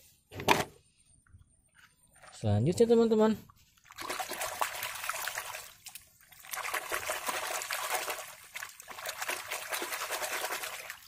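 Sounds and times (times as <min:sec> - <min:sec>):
muddy water splashing and sloshing: 0:03.4 - 0:11.0.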